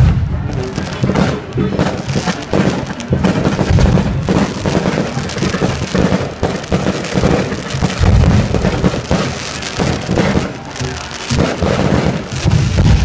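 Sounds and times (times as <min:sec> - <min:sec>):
firework booms: 0:00.0 - 0:13.0
firework crackling: 0:00.0 - 0:13.0.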